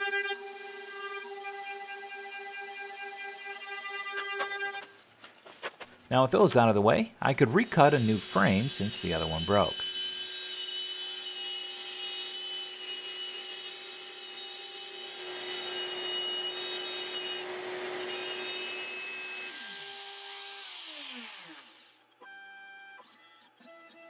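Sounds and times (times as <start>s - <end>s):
wood cutting noise: 0.0s - 5.9s, 6.5s - 24.0s
router spindle whine: 14.4s - 24.0s.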